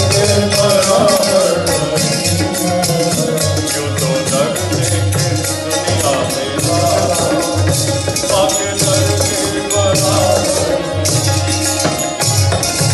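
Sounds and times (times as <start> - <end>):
man singing into a microphone: 0.0 - 12.1
rattling percussion: 0.0 - 12.9
hand drum beating: 4.3 - 12.9.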